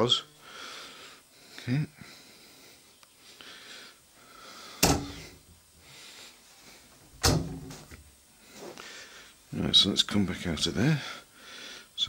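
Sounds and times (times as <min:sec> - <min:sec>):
wardrobe doors knocking shut: 0:04.8 - 0:05.3, 0:07.2 - 0:07.9.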